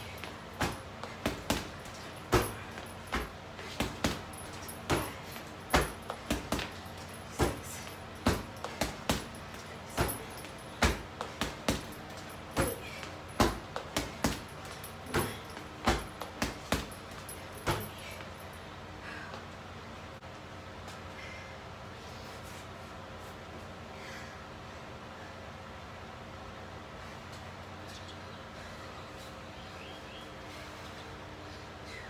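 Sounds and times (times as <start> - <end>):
punches and kicks on punching bag: 0.0 - 18.2.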